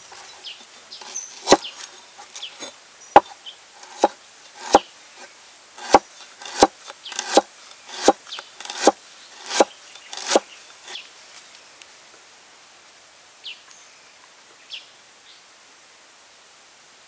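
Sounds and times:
cleaver knocking on wooden board: 0:03.2 - 0:04.8, 0:05.8 - 0:10.4.

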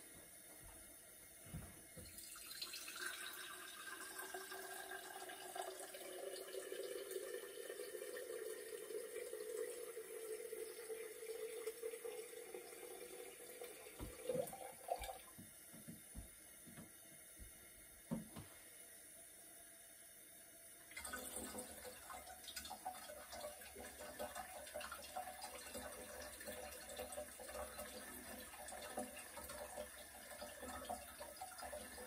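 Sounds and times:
water running into vessel: 0:01.9 - 0:16.3, 0:20.9 - 0:32.0.

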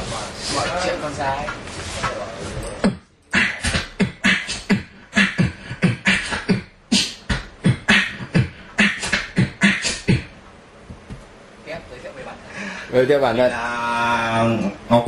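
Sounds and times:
beatboxing: 0:01.4 - 0:10.4.

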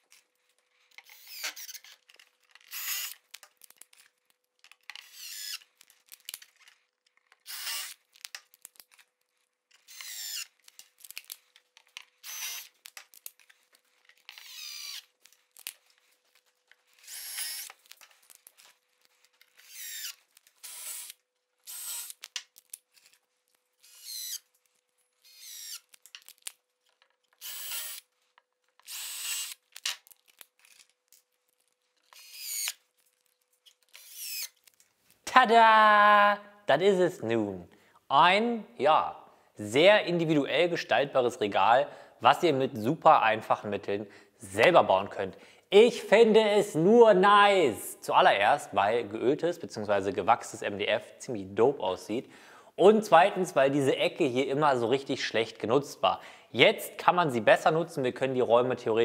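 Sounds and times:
drill driving screws: 0:01.0 - 0:01.9, 0:02.7 - 0:03.2, 0:05.0 - 0:05.6, 0:07.4 - 0:08.0, 0:09.8 - 0:10.5, 0:12.2 - 0:12.8, 0:14.3 - 0:15.0, 0:17.0 - 0:17.8, 0:19.5 - 0:22.2, 0:23.8 - 0:24.4, 0:25.2 - 0:25.9, 0:27.4 - 0:28.1, 0:28.8 - 0:29.6, 0:32.1 - 0:32.8, 0:33.9 - 0:34.6.

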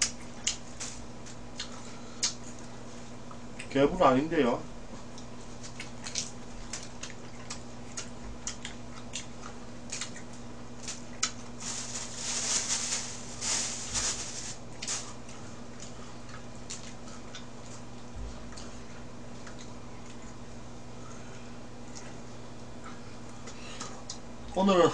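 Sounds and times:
steady low hum: 0:00.0 - 0:24.9
wet chewing: 0:05.0 - 0:11.6, 0:14.7 - 0:20.4
rustling: 0:11.6 - 0:15.2.

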